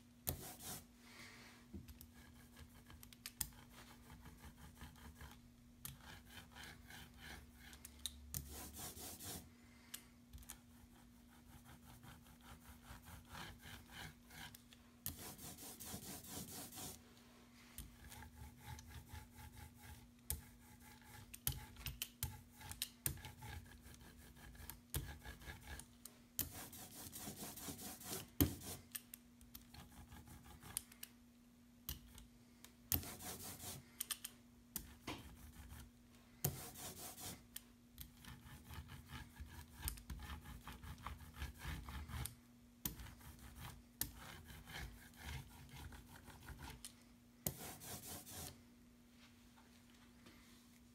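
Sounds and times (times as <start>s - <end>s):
faint steady hum: 0.0s - 50.9s
ink roller rubbing over wood: 0.4s - 0.9s, 8.5s - 9.5s, 15.1s - 17.0s, 33.0s - 33.8s, 36.5s - 37.5s, 47.6s - 48.5s.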